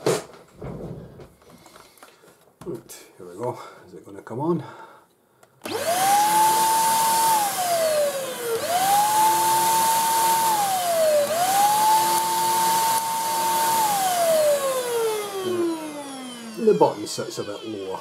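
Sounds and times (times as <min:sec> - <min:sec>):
vacuum cleaner motor whining: 0:05.6 - 0:18.0.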